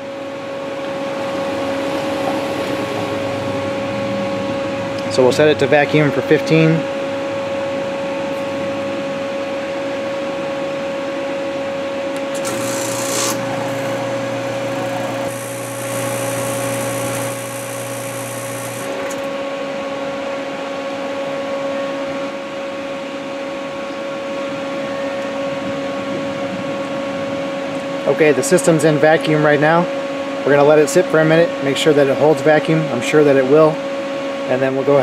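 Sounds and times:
deep drone: 0.0 - 6.2, 12.2 - 20.0
vacuum pump humming: 0.0 - 22.4.

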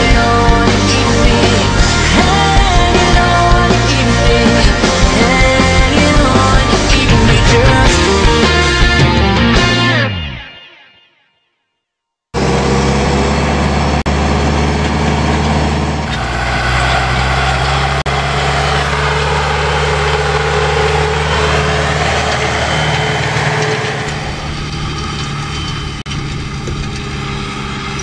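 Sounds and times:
tractor diesel engine running: 0.0 - 10.4, 12.4 - 28.0.

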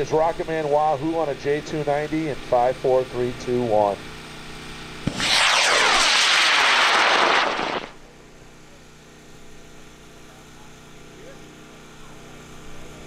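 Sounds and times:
falling sweeping tone: 5.1 - 8.0
rocket motor rushing hiss: 5.1 - 8.0.

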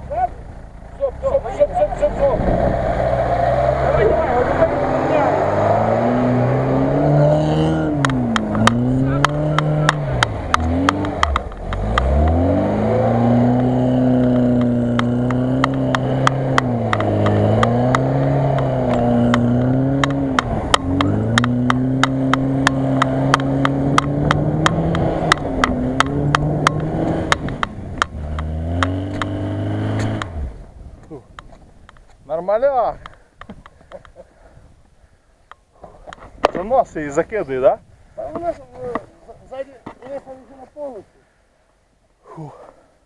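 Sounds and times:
car engine revving: 0.0 - 30.8
sharp clicks: 8.0 - 12.4, 14.6 - 30.4.

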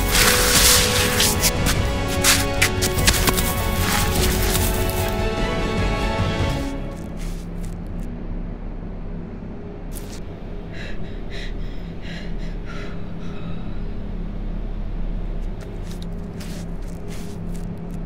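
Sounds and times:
low droning hum: 0.0 - 5.5, 6.7 - 18.0
person gasping for breath: 10.6 - 14.0.

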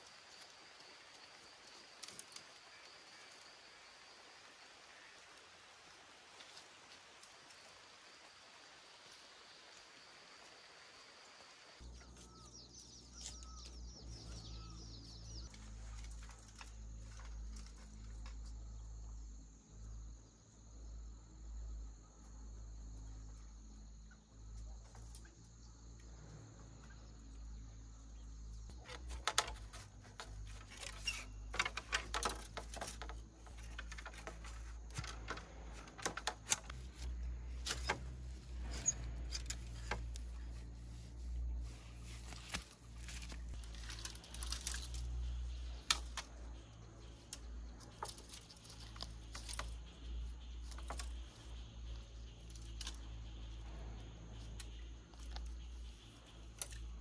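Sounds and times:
light rain hissing: 0.0 - 11.8
insects trilling: 0.0 - 57.0
bird calling: 11.8 - 15.5
bamboo poles knocking and rustling: 15.5 - 18.7, 28.7 - 53.6, 54.3 - 57.0.

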